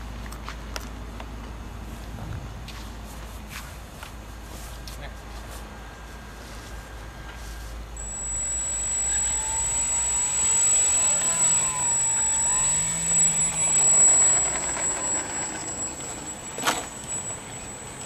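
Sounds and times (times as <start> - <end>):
electric motor and propeller whine: 5.7 - 18.0.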